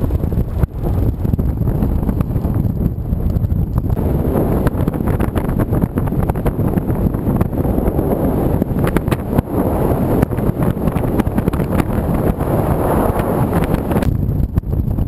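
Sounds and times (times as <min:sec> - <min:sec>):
gusty wind roar on microphone: 0:00.0 - 0:15.0.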